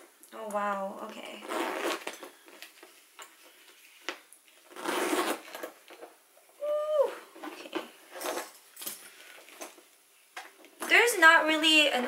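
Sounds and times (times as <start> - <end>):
person humming: 6.6 - 7.2.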